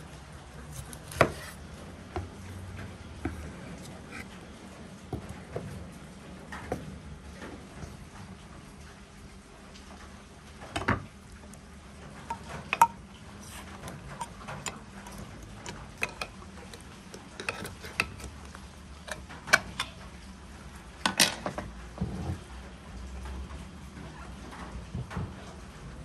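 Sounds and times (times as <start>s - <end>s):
kitchen utensils and dishes clicking: 12.2s - 20.0s.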